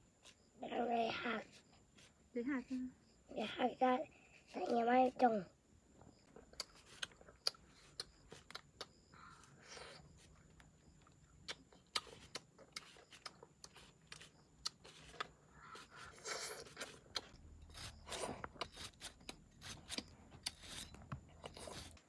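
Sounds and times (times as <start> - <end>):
knife cutting crisp fruit: 11.4 - 22.0.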